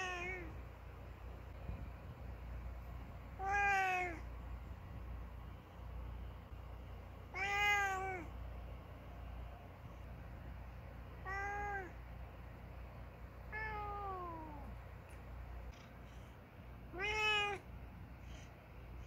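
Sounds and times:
cat meowing: 0:00.0 - 0:00.5, 0:03.4 - 0:04.2, 0:07.3 - 0:08.3, 0:11.2 - 0:12.0, 0:13.5 - 0:14.7, 0:16.9 - 0:17.6.

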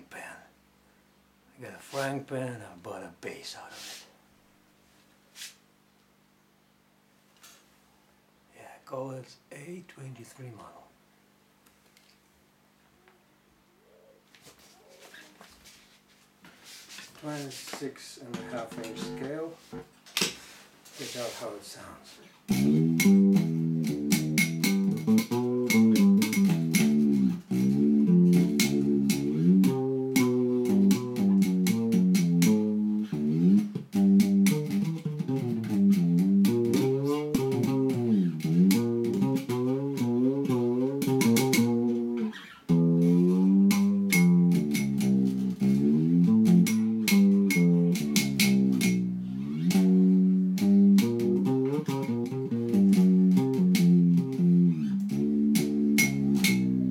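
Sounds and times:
fretless bass sliding notes: 0:18.2 - 0:19.9, 0:22.5 - 0:56.9.

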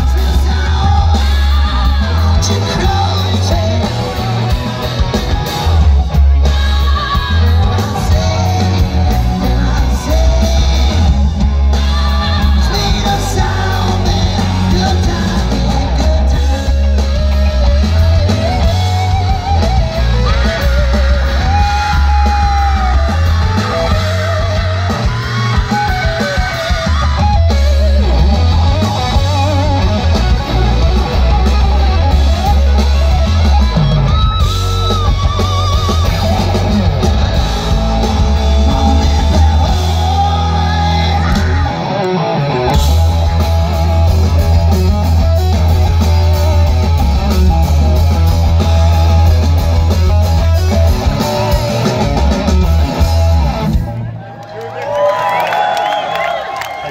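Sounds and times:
person singing: 0:00.0 - 0:04.9, 0:06.1 - 0:18.4, 0:37.7 - 0:42.0
live rock band playing: 0:00.0 - 0:56.9.

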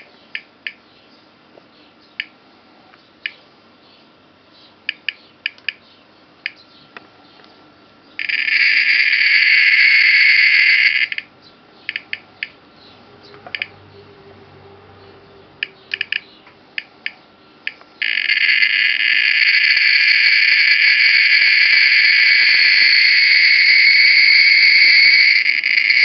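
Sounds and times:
geiger counter clicking: 0:04.9 - 0:05.8, 0:08.2 - 0:11.3, 0:11.9 - 0:12.6, 0:13.4 - 0:13.7, 0:15.6 - 0:23.3.

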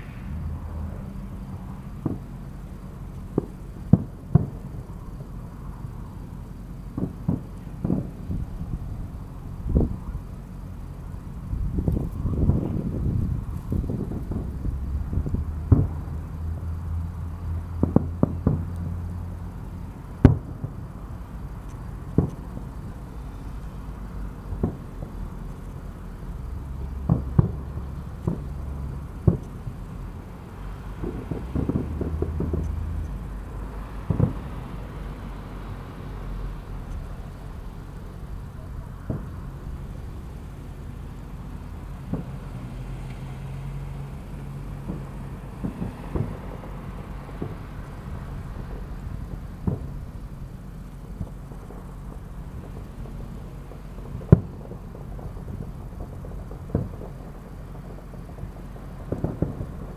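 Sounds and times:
low rumble: 0:00.0 - 0:42.6
fireworks bursting and cracking: 0:00.0 - 0:59.9.

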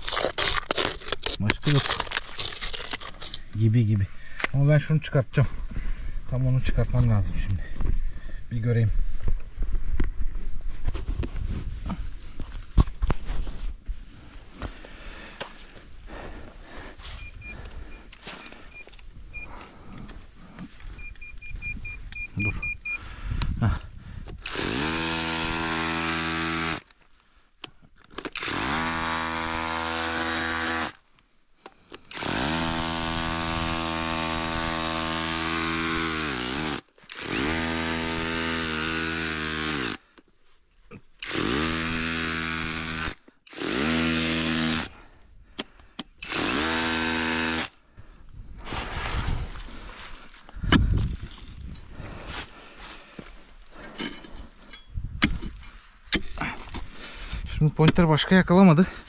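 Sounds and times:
electric power tool motor: 0:24.4 - 0:26.9, 0:28.3 - 0:31.0, 0:32.0 - 0:40.0, 0:41.2 - 0:44.9, 0:46.2 - 0:47.8.

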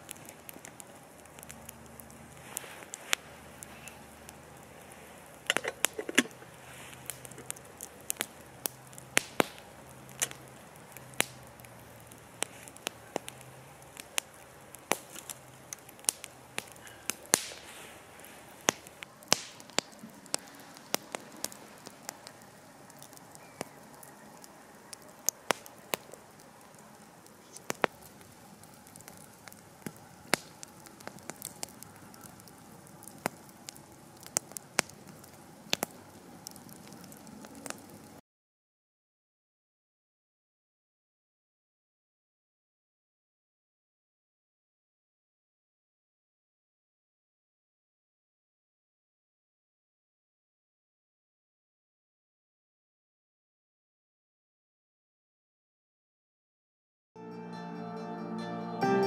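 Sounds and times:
campfire crackling and popping: 0:00.0 - 0:38.2.

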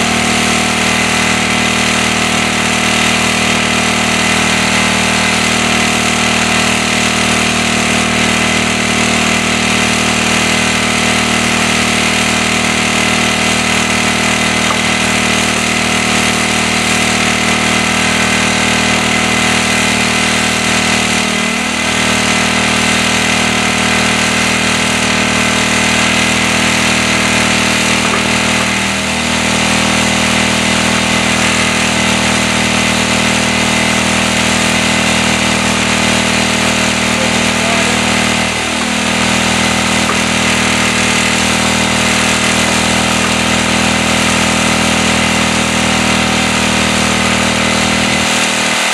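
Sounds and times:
generator engine running: 0:00.0 - 0:48.9.

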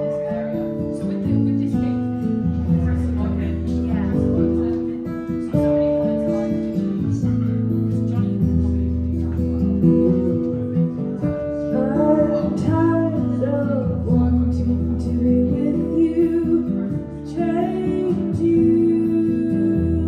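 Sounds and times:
acoustic guitars strummed and picked: 0:00.0 - 0:20.0
woman singing: 0:09.8 - 0:20.0.

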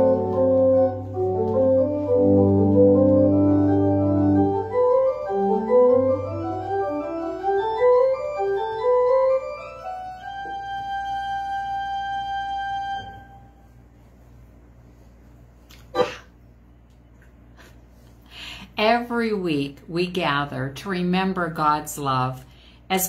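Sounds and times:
organ music: 0:00.0 - 0:13.8.

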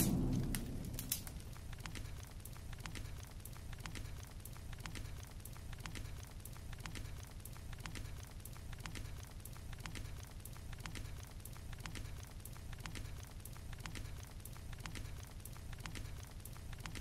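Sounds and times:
steady low rumble: 0:00.0 - 0:02.3
fire crackling and popping: 0:00.0 - 0:05.6.

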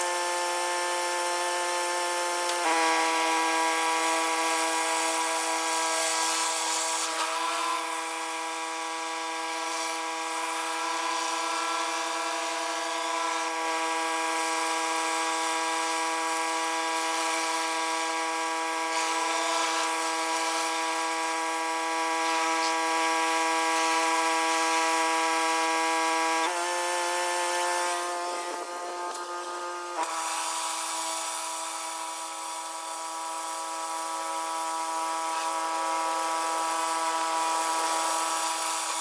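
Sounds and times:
pressure washer whine: 0:00.0 - 0:39.0
hiss of water spray: 0:03.8 - 0:07.8.

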